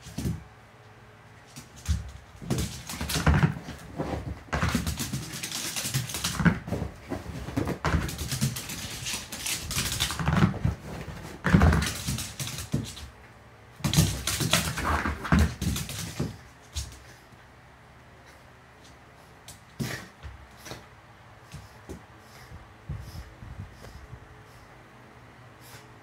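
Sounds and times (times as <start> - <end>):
dog claws scrabbling on wood floor: 1.5 - 13.1, 13.8 - 17.1.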